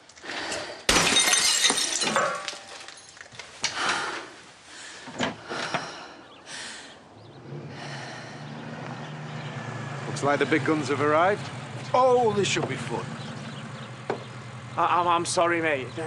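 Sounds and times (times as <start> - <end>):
glass smashing: 0.9 - 3.4
glass shards tinkling: 1.0 - 3.4
quiet knocks: 14.0 - 14.3.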